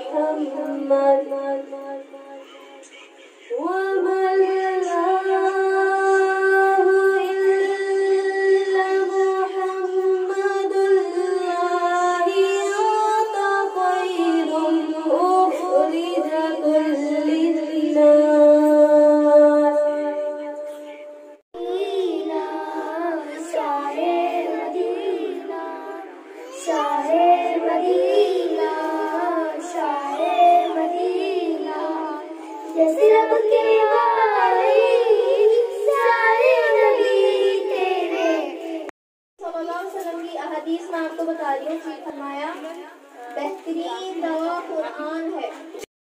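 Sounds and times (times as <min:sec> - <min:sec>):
girl singing: 0:00.0 - 0:02.4, 0:03.6 - 0:20.8, 0:21.6 - 0:38.9
woman singing into a microphone: 0:00.0 - 0:02.4, 0:03.5 - 0:20.7, 0:21.7 - 0:38.5.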